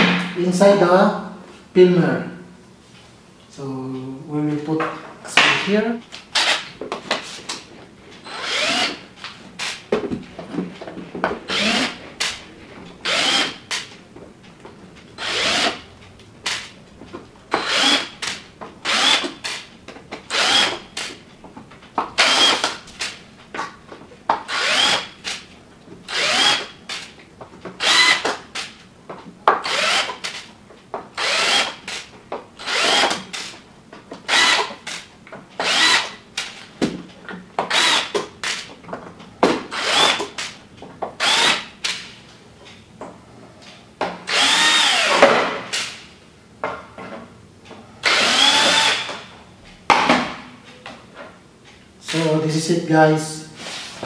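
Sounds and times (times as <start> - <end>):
cordless drill whirring: 6.3 - 6.7, 8.2 - 9.0, 11.5 - 12.4, 13.0 - 13.8, 15.2 - 15.9, 17.6 - 18.2, 18.8 - 19.7, 20.3 - 20.9, 22.2 - 22.8, 24.5 - 25.4, 26.1 - 27.1, 27.8 - 28.4, 29.6 - 30.4, 31.2 - 32.0, 32.6 - 33.4, 34.3 - 34.7, 35.6 - 36.2, 37.7 - 38.1, 39.7 - 40.5, 41.2 - 41.7, 44.3 - 45.2, 48.0 - 49.3.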